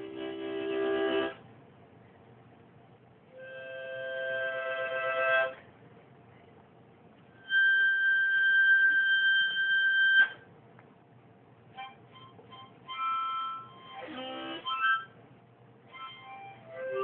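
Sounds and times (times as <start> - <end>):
harmonica held notes: 0.0 - 1.4, 3.3 - 5.6, 7.3 - 10.5, 11.7 - 15.2, 15.8 - 17.0.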